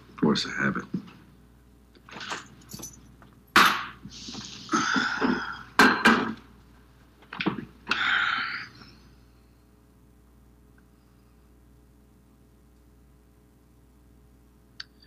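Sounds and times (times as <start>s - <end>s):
dishes clinking on a table: 5.8s - 6.4s.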